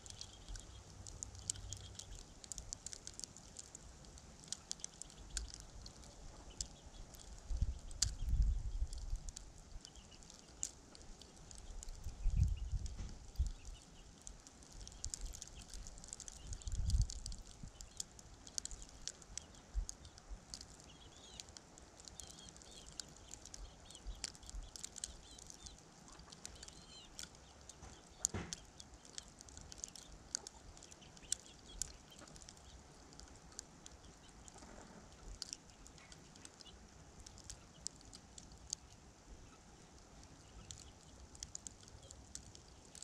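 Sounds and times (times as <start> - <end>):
faint bird chirps: 0.0 - 3.7, 9.8 - 38.0, 38.6 - 41.2
snow and ice ticking on camera: 0.0 - 43.0
low wind rumble: 5.1 - 10.4, 11.0 - 21.2.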